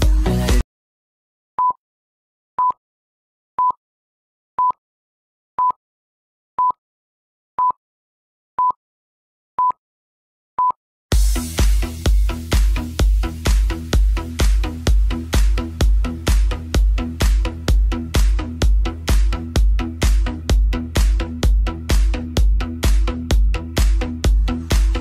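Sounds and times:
electronic dance music: 0.0s - 0.6s, 11.1s - 25.0s.

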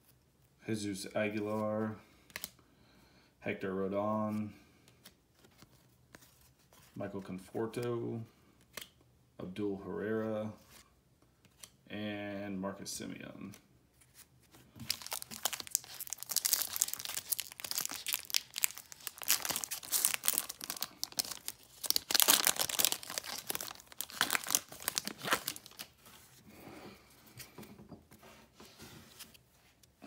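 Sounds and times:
foil wrapper crinkling and tearing: 14.8s - 26.1s.

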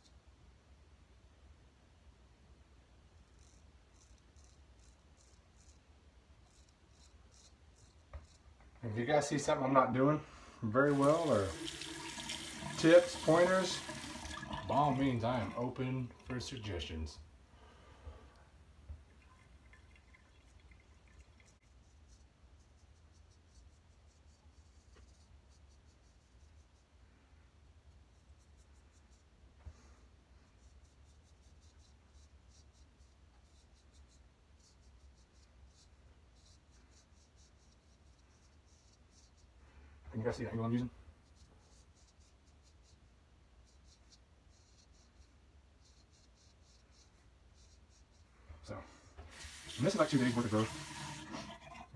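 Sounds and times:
razor scraping stubble: 3.2s - 9.5s, 10.8s - 11.8s, 49.3s - 51.8s.

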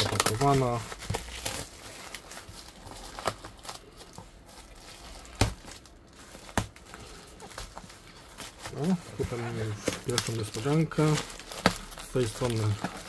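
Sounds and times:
plastic wrapping crinkling: 0.0s - 13.0s.

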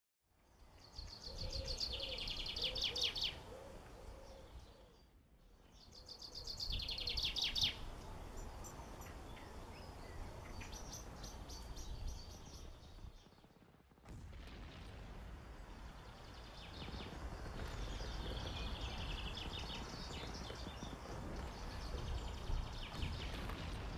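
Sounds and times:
low background noise: 0.3s - 23.9s
bird chirps: 0.4s - 13.5s, 15.9s - 23.9s
songbird trilling: 1.0s - 3.5s, 5.8s - 12.6s.

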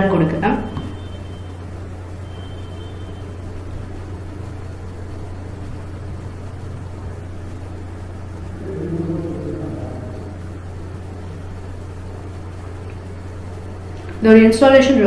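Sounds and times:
steady low hum: 0.0s - 15.0s
pitched tonal sound: 0.6s - 12.4s.

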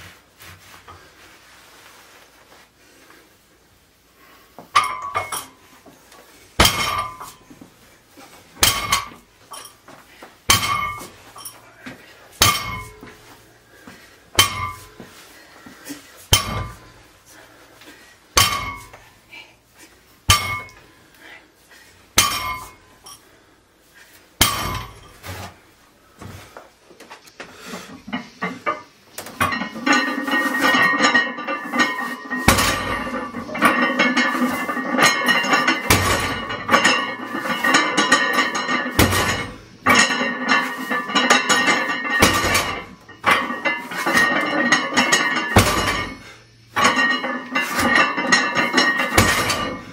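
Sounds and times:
barbell plates clanking on floor: 16.3s - 17.0s, 28.0s - 49.9s.

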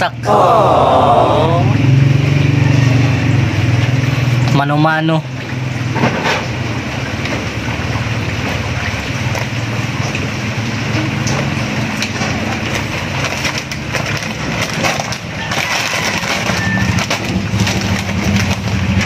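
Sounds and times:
plastic bag crackling: 12.4s - 19.0s.

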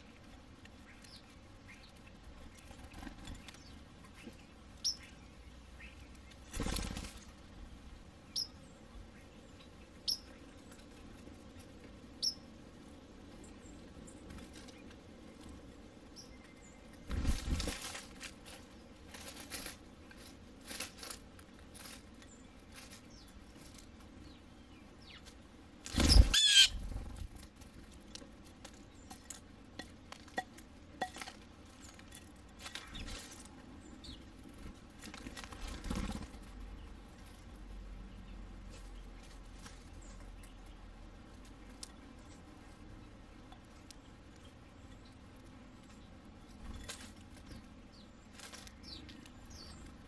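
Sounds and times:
birds pecking and rustling leaves: 0.0s - 50.0s
bird wingbeats: 6.4s - 7.4s, 17.0s - 19.8s, 25.2s - 27.9s, 34.5s - 36.6s
brief bird calls: 26.0s - 26.8s.

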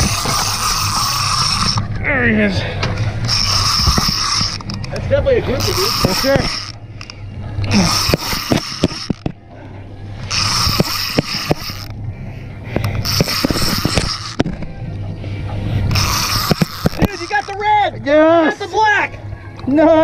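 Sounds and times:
fishing reel clicks: 0.0s - 1.9s, 3.2s - 5.0s, 5.6s - 9.3s, 10.2s - 12.0s, 13.0s - 14.6s, 15.9s - 17.6s
fishing reel whirring: 0.0s - 2.0s, 3.1s - 9.3s, 10.2s - 12.0s, 12.9s - 14.7s, 15.8s - 17.7s
low steady hum: 0.0s - 20.0s.

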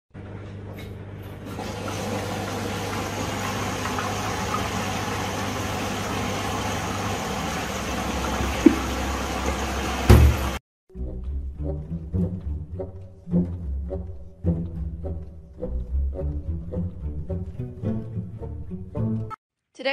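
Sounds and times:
appliance humming and rushing: 0.9s - 10.6s
loud thump: 10.1s - 10.5s.

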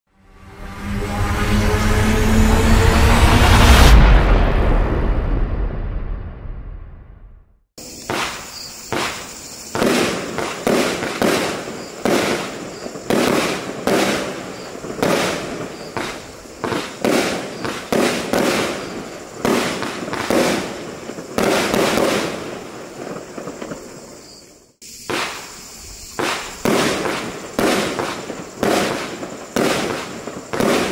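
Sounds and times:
crackle of firework stars: 7.8s - 30.9s
fireworks banging: 7.8s - 30.9s.

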